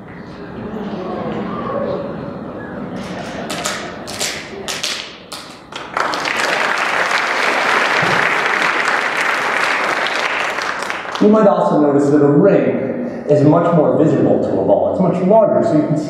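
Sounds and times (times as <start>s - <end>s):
audience applause: 3.0s - 11.3s.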